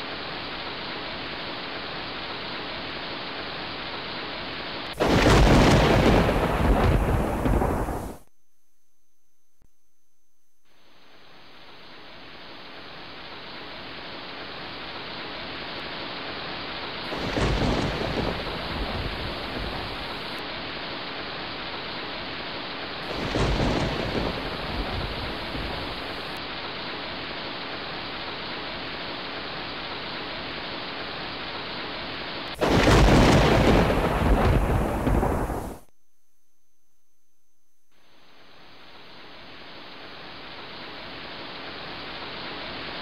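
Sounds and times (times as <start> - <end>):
surf washing on beach: 0.0 - 8.2, 11.6 - 35.8.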